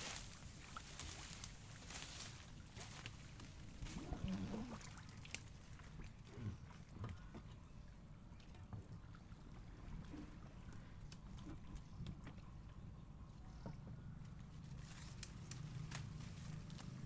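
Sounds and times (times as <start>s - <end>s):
water splashing against hull: 0.0s - 7.7s.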